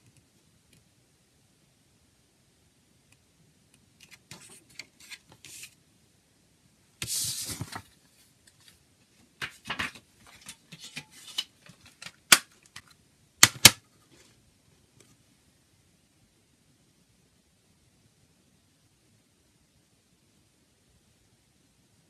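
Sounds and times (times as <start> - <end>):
paper rustling: 4.0 - 5.8, 7.0 - 8.8, 9.4 - 12.7.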